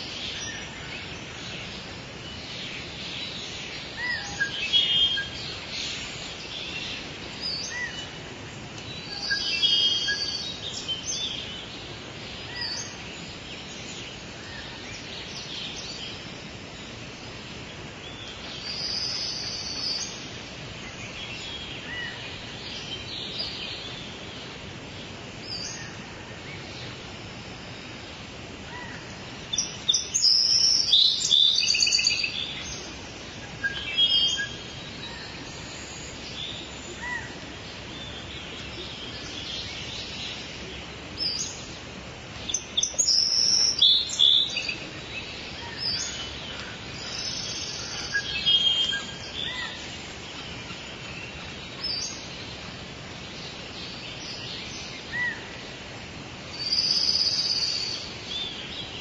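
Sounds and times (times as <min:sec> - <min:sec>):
birds chirping and singing: 0:00.0 - 0:16.7, 0:28.8 - 0:55.6, 0:56.5 - 0:59.0
steady background hiss: 0:00.0 - 0:59.0.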